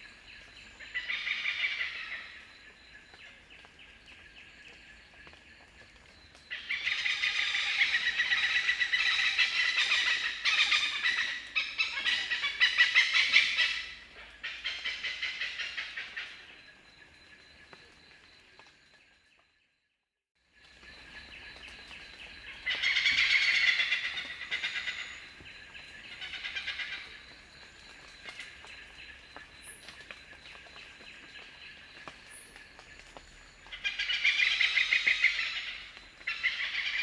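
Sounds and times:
hornbill cackling calls: 6.6s - 16.5s, 22.7s - 25.2s, 33.7s - 37.0s.

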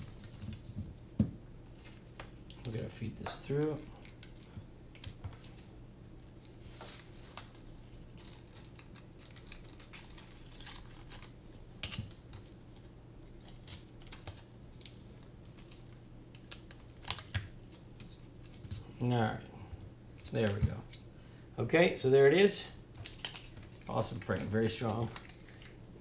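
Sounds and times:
faint low hum: 0.0s - 26.0s.

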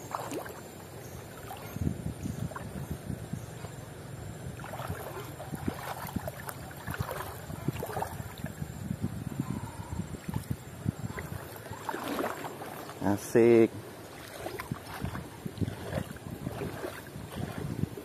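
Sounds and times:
fish thrashing and splashing: 0.0s - 1.8s, 4.6s - 8.6s, 10.3s - 13.0s, 14.1s - 18.0s
stream running over stones: 4.7s - 8.7s.

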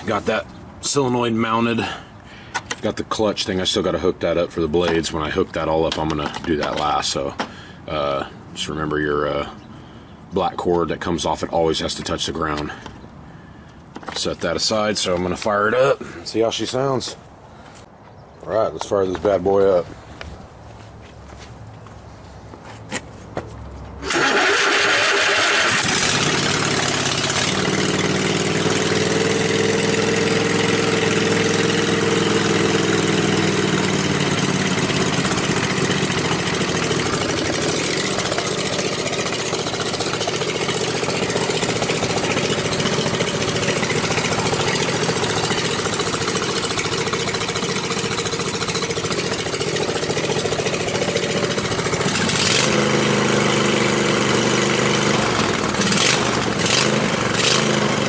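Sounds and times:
mower engine starting and idling: 24.0s - 58.0s.

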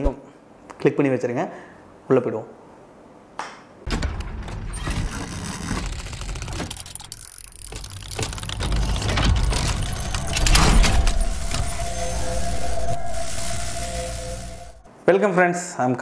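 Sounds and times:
metallic clicks and clanks: 5.8s - 11.7s
deep rumble: 7.6s - 14.9s
sustained ringing tone: 8.8s - 14.9s.

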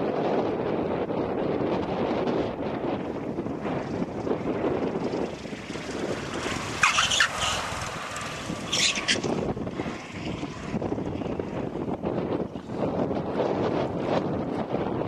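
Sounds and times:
vehicle road noise: 0.0s - 15.0s
wind buffeting microphone: 0.0s - 15.0s.

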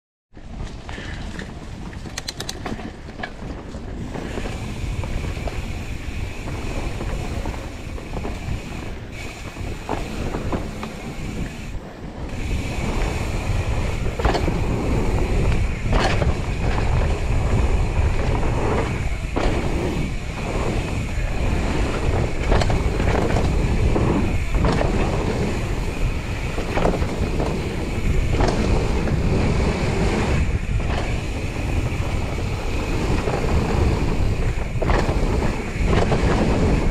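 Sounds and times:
bike knocks and rattles: 0.4s - 36.9s
bike tyre noise: 0.4s - 36.9s
wind buffeting microphone: 0.4s - 36.9s.

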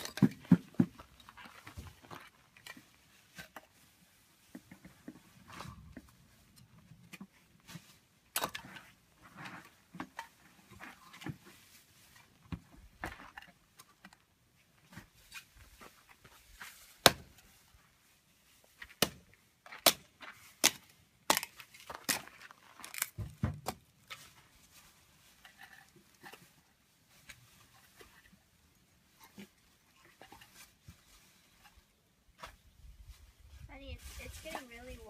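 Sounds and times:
wood splitting knocks and cracks: 0.0s - 1.1s, 17.0s - 17.4s, 18.8s - 23.9s.

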